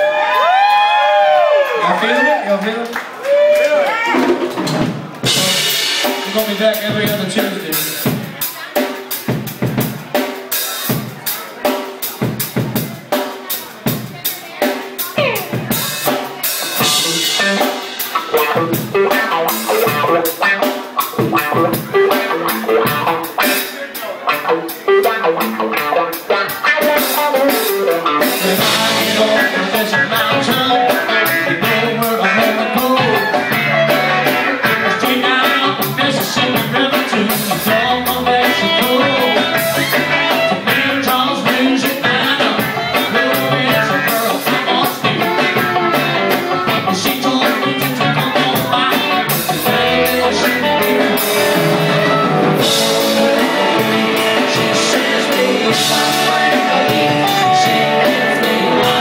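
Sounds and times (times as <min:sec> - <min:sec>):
electric guitar: 0:03.5 - 0:11.2, 0:14.7 - 0:59.0
bass guitar: 0:03.9 - 0:59.0
drum-kit beat: 0:04.1 - 0:59.0
keyboard: 0:05.2 - 0:59.0.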